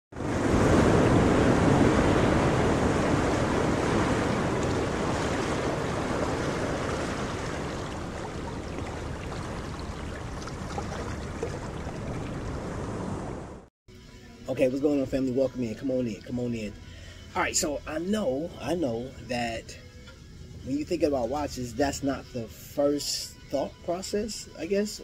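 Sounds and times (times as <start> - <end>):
ocean waves rushing: 0.1 - 13.7.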